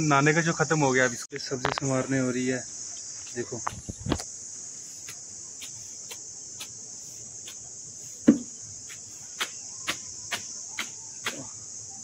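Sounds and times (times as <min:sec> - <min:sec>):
high-pitched insect trill: 0:00.0 - 0:12.0.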